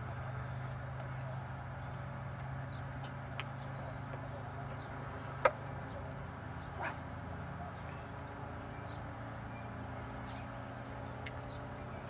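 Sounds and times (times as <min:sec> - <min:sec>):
low hum: 0:05.0 - 0:12.0.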